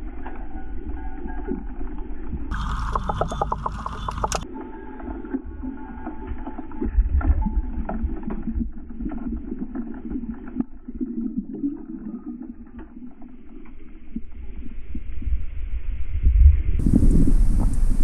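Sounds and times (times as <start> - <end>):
underwater rumble of moving water: 0.0 - 18.0
underwater clicks and knocks: 1.3 - 4.4, 6.1 - 10.7.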